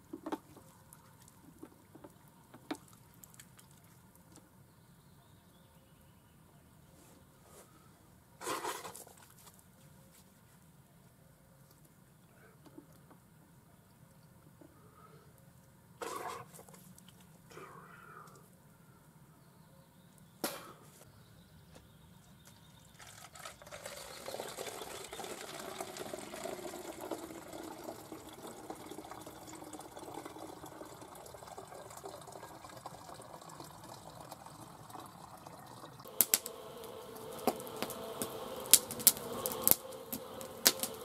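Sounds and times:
water running: 0:23.6 - 0:41.0.

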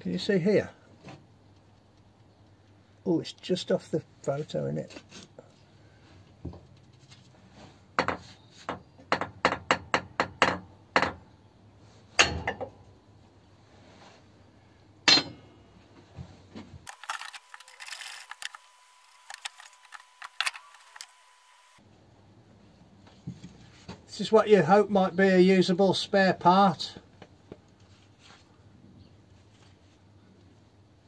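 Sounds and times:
faint steady whine: 0:11.6 - 0:23.5.

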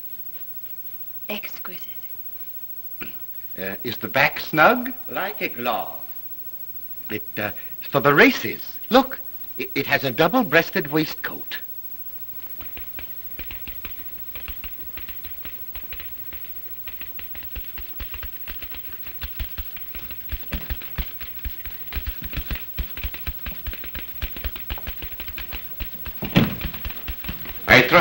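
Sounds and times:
rapid irregular clicking: 0:12.0 - 0:28.0.

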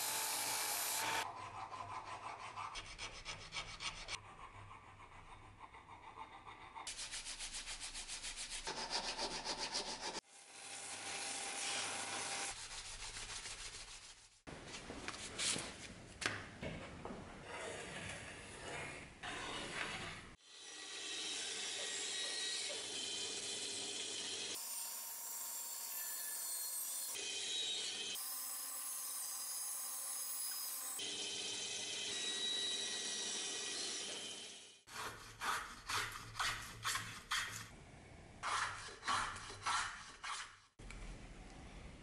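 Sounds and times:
bandsaw cutting wood: 0:00.0 - 0:02.7, 0:08.7 - 0:12.5, 0:20.5 - 0:37.0
hand file rasping on wood: 0:01.0 - 0:10.2, 0:34.9 - 0:37.8, 0:38.4 - 0:40.7.

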